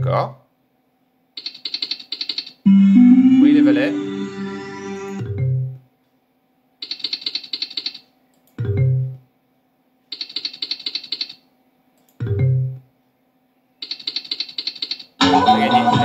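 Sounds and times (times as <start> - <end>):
rapid clicking ticks of spinning reels: 10.1 - 11.4.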